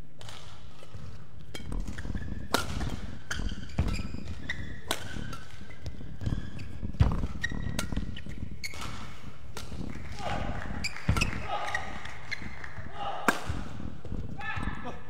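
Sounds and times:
racket hitting shuttlecock: 0.2 - 14.7
footfalls on court floor: 0.2 - 15.0
shoe squeaks: 0.9 - 9.5, 10.7 - 12.7.

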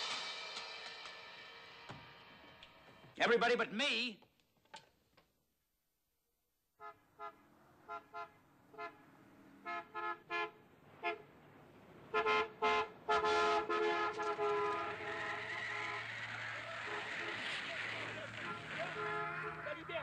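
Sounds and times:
car horn honking: 6.8 - 11.3, 12.1 - 20.0.

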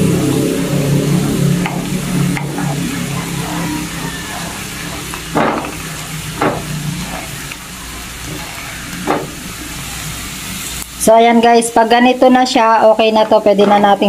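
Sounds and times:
coconut cream sizzling and bubbling: 0.0 - 12.9
spatula stirring in a wok: 0.1 - 10.8.

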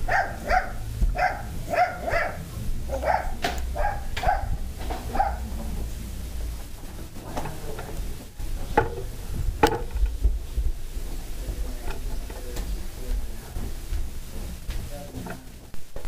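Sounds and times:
dog barking: 0.0 - 5.5.

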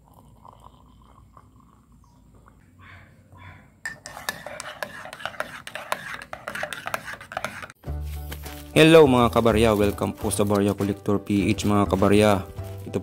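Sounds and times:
spoon clinking against ceramic mug: 3.9 - 7.8.

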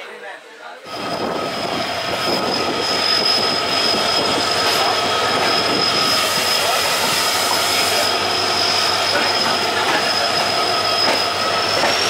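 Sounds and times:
train wheel squeal: 0.9 - 12.0
wheels rumbling on rails: 0.9 - 12.0.

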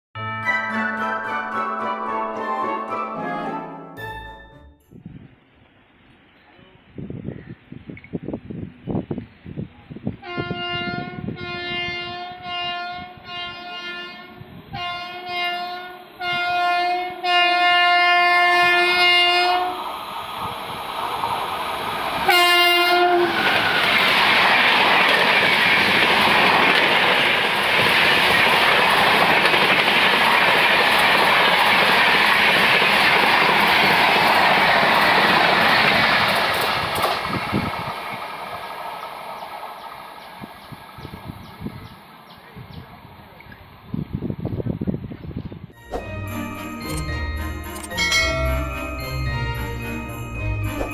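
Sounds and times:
train passing at speed: 8.5 - 50.9
train air horn blasts: 10.2 - 19.8, 22.2 - 23.5.

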